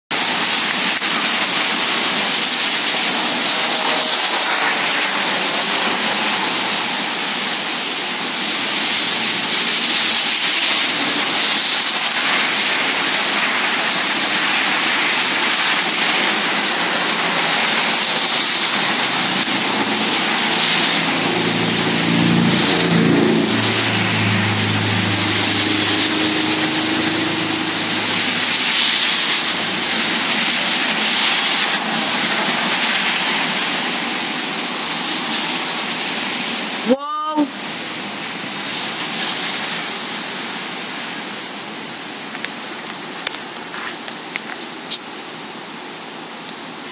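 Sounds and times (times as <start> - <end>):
heavy rain: 0.1 - 46.9
wind: 0.1 - 46.9
vehicle engine hum: 17.5 - 31.0.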